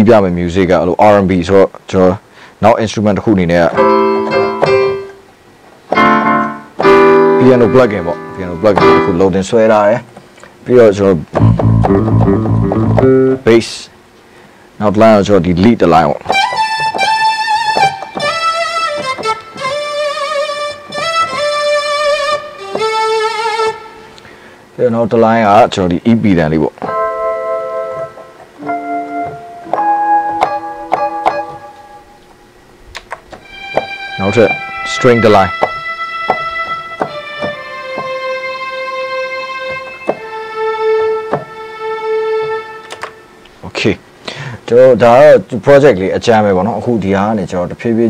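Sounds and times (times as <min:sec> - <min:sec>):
keyboard lead line: 0:03.6 - 0:05.3, 0:05.9 - 0:10.0, 0:11.4 - 0:13.6, 0:16.1 - 0:24.1, 0:25.5 - 0:32.7, 0:33.4 - 0:43.3
synthesized strings held notes: 0:05.9 - 0:09.4, 0:11.4 - 0:13.5, 0:16.3 - 0:24.1, 0:26.8 - 0:32.6, 0:33.4 - 0:43.3
short sharp hits: 0:11.4 - 0:13.2.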